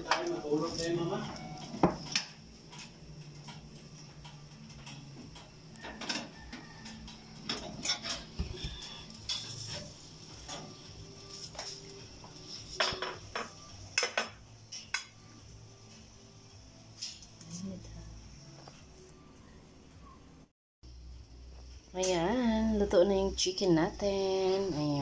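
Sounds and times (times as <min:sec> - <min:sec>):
metal rotisserie spit clattering: 0:02.0 - 0:13.4.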